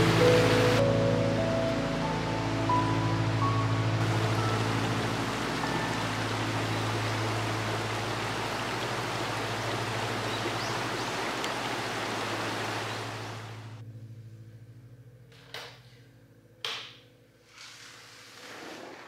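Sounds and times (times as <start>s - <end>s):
river rushing over rocks: 4.0s - 13.7s.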